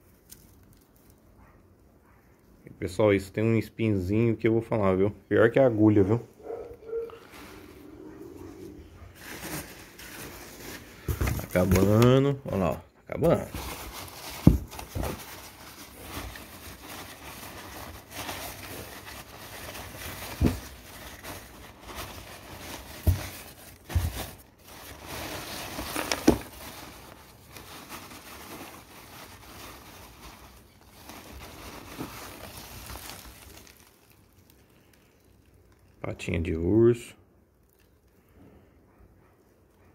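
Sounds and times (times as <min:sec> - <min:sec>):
wrapping paper rustling: 0:09.0 - 0:36.1.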